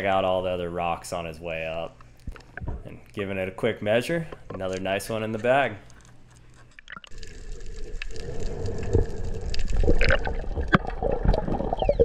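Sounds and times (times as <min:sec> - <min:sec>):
underwater rushing gurgling water: 0:07.1 - 0:12.0.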